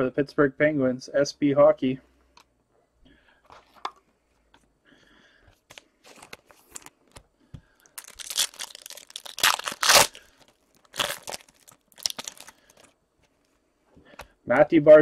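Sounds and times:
foil wrapper tearing and crinkling: 0:07.9 - 0:12.9.

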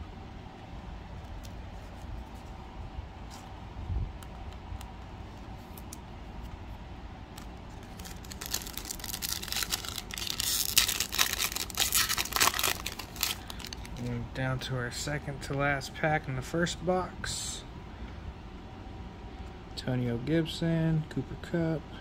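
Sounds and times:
foil wrapper crinkling and tearing: 0:07.4 - 0:14.1.

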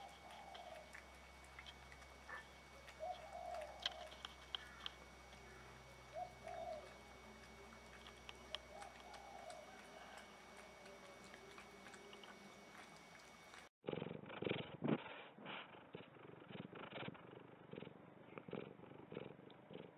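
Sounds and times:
muffled cat purr: 0:00.0 - 0:12.9, 0:13.9 - 0:19.9
cats chewing and lapping: 0:00.0 - 0:13.7
low steady hum: 0:00.0 - 0:13.7.

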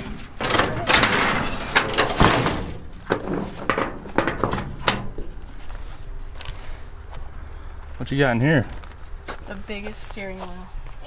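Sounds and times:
metal clunks on truck body: 0:00.0 - 0:05.4.

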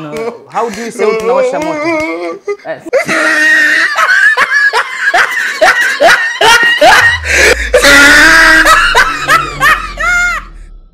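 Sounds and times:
shrieking laughter: 0:02.5 - 0:10.6
deep low rumble: 0:06.8 - 0:10.9.

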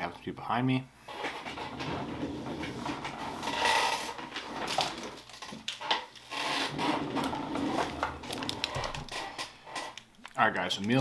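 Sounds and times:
rubbing and scraping: 0:01.0 - 0:10.1.

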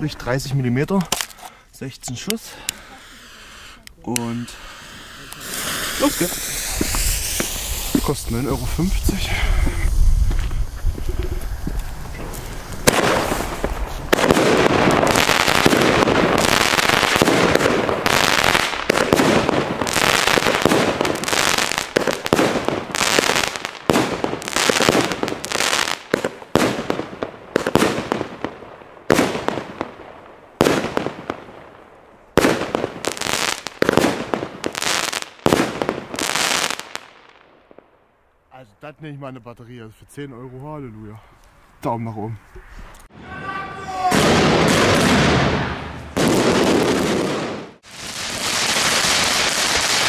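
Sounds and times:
firework battery bangs: 0:05.4 - 0:08.9, 0:10.1 - 0:30.0, 0:44.0 - 0:50.0.

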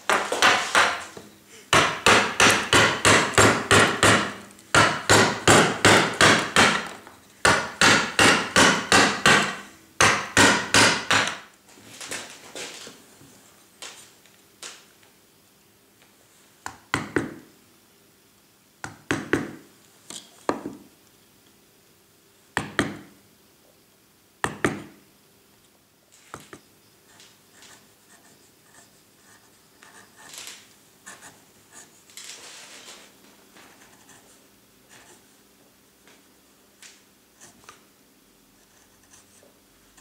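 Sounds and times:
mallet knocking gouge handle: 0:01.8 - 0:06.9, 0:07.5 - 0:11.4.

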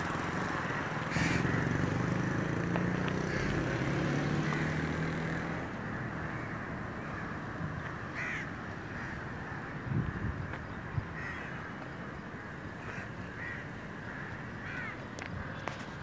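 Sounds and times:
street noise: 0:00.0 - 0:16.0
crows cawing: 0:00.6 - 0:05.0, 0:05.9 - 0:07.4, 0:08.1 - 0:10.5, 0:11.1 - 0:11.8, 0:12.4 - 0:15.8.

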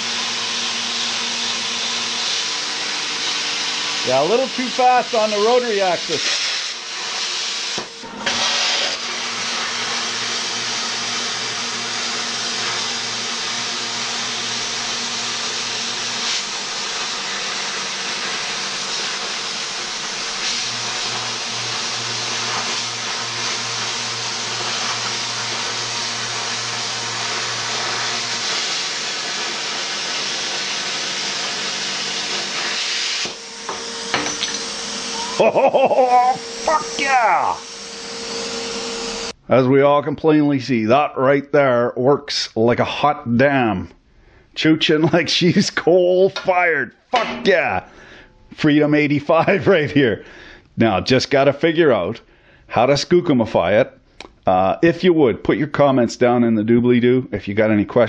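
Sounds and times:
plasma cutter hissing: 0:04.0 - 0:11.0, 0:15.3 - 0:38.2.

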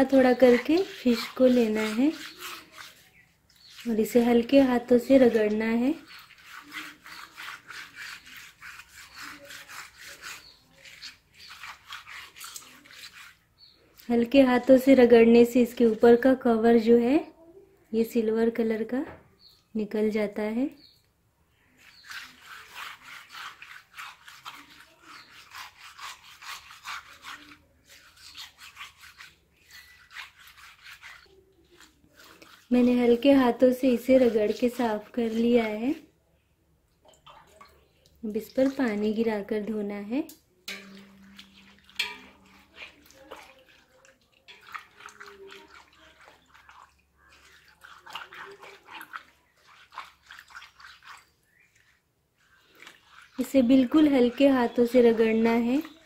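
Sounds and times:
fish scraping on stone: 0:00.0 - 0:13.8, 0:21.8 - 0:36.1, 0:40.7 - 0:56.0
water splashing and squelching: 0:00.0 - 0:16.1, 0:21.6 - 0:36.1, 0:36.9 - 0:56.0.

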